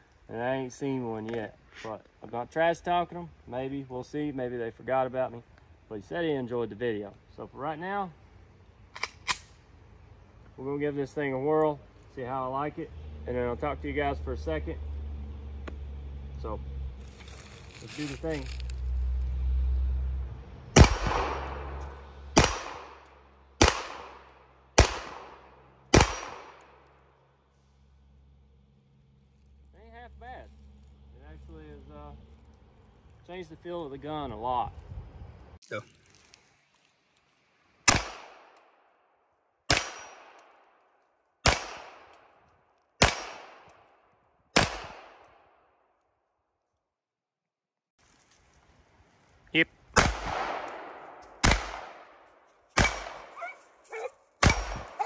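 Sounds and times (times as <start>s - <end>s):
pistol shots with echo: 20.8s - 21.8s, 22.4s - 23.0s, 23.6s - 26.7s, 37.9s - 38.5s, 39.7s - 40.4s, 41.4s - 42.1s, 43.0s - 43.7s, 44.6s - 45.4s, 50.0s - 52.1s, 52.8s - 53.4s, 54.4s - 55.0s.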